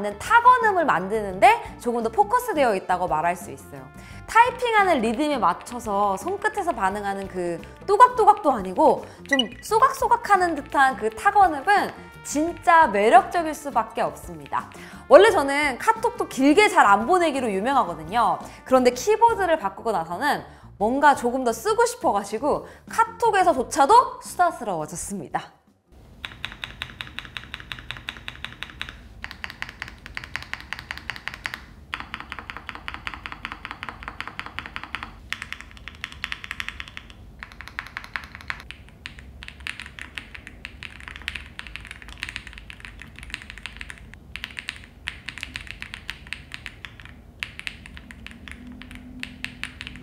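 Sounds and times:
fast typing on mechanical keyboard: 26.2s - 50.0s.

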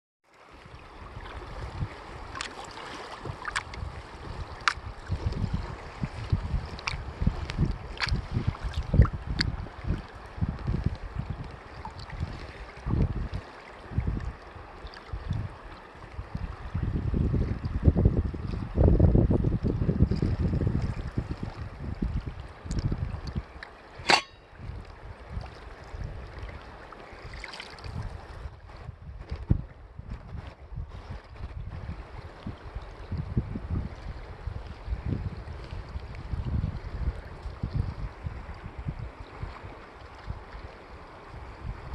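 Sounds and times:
river water lapping: 0.3s - 16.9s, 20.1s - 28.6s, 34.0s - 41.9s
wind buffeting microphone: 0.5s - 41.9s
sharp water splashes: 2.2s - 3.8s, 4.5s - 4.9s, 24.0s - 24.6s
sharp loud sound: 24.1s - 24.5s.

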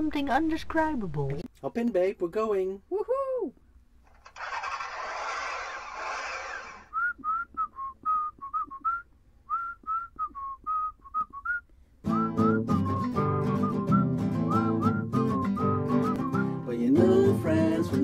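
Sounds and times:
whistled tune: 6.9s - 16.7s
guitar music: 12.1s - 18.0s.

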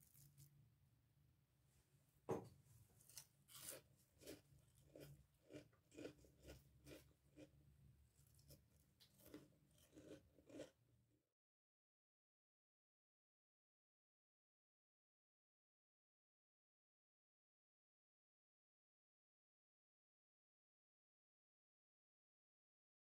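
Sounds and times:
onion rings crunching: 3.0s - 7.6s, 8.2s - 10.8s.

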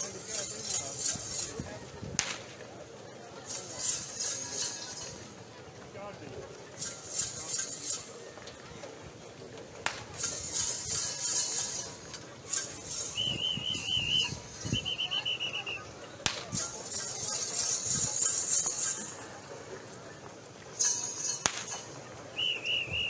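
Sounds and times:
crowd noise: 0.0s - 23.0s
sharp cracks: 2.2s - 2.6s, 9.8s - 10.8s, 16.2s - 16.8s, 21.3s - 21.8s
trilling whistle blasts: 12.9s - 15.9s, 22.3s - 23.0s.

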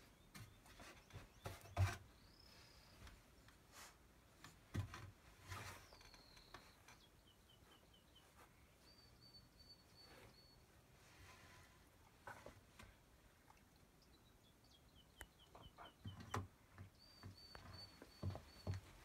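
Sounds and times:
puppy paws knocking and rustling: 16.0s - 19.0s.

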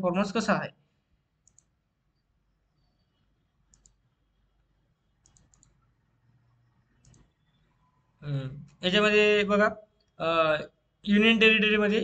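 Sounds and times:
faint computer mouse clicks: 1.4s - 1.7s, 3.7s - 4.0s, 5.2s - 5.8s, 7.0s - 7.4s.

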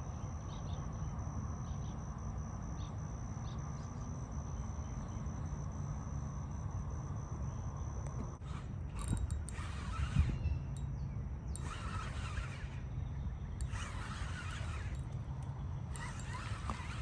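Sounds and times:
insects droning: 0.0s - 17.0s.

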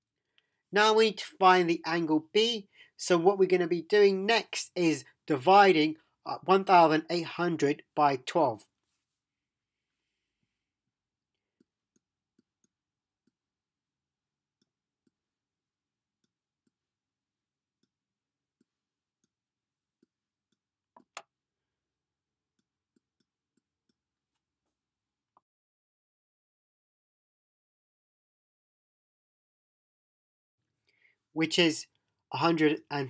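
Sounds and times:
stylus tapping on tablet: 20.0s - 21.3s.

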